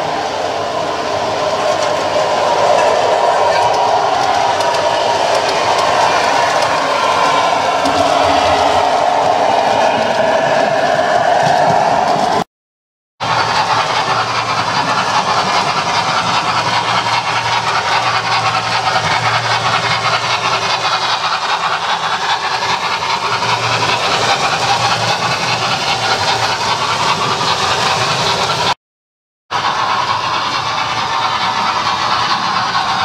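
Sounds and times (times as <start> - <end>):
model train wheels on rail: 0.0 - 12.4, 13.2 - 28.8, 29.5 - 33.0
low hum: 2.8 - 12.4.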